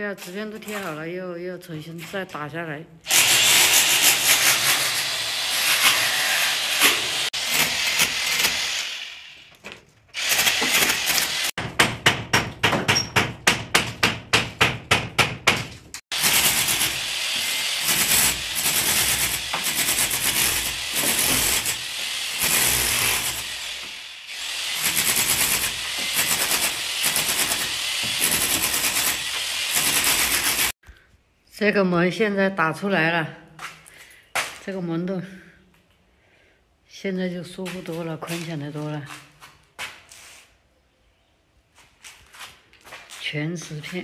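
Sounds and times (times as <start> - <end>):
electric hammer chiselling concrete: 3.1 - 9.5, 10.1 - 12.2, 16.1 - 30.8.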